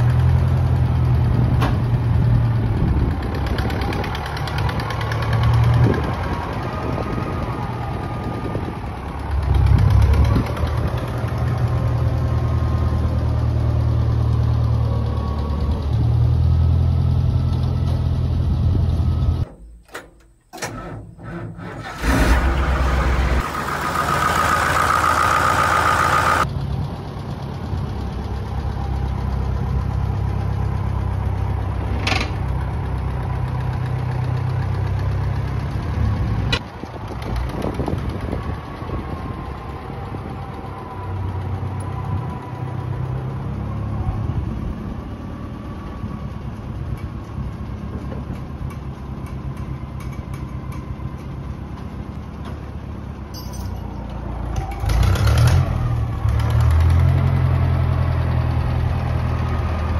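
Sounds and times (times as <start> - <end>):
tractor engine idling: 0.0 - 16.8, 19.3 - 43.7.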